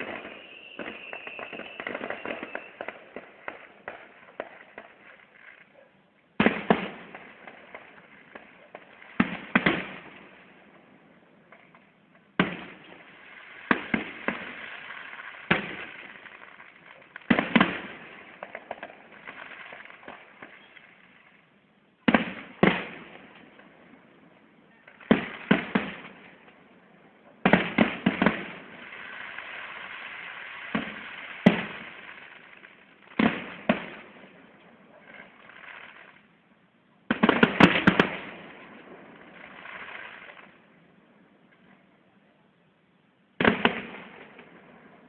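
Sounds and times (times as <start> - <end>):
fireworks shells bursting: 0.0 - 5.7
crackling fizz: 0.0 - 5.8.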